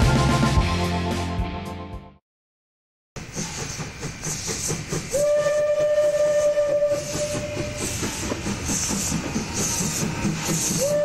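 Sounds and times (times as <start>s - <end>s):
steam locomotive chuffing: 3.2s - 11.0s
steam whistle: 5.1s - 8.2s, 9.6s - 11.0s.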